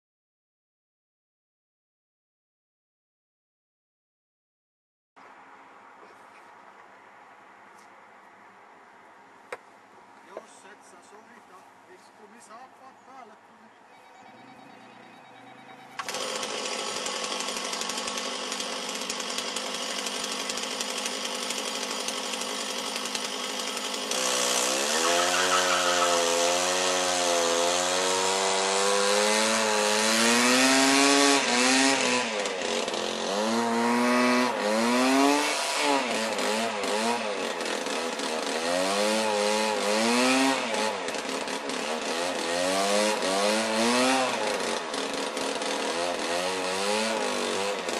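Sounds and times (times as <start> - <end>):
small petrol engine revving: 14.3 - 47.9.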